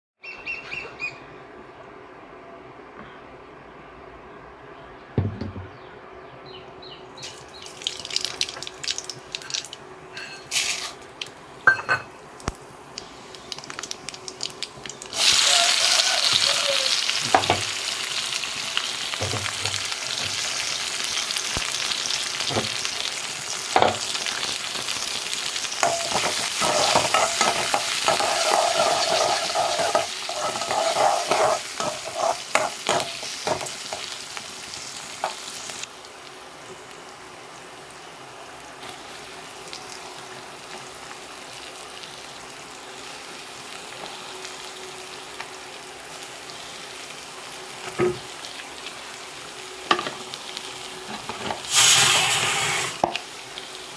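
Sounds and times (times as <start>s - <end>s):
hot oil crackling: 7.2s - 53.9s
onions sizzling in oil: 7.2s - 53.9s
steel spoon scraping pan: 10.2s - 10.6s, 25.8s - 33.6s.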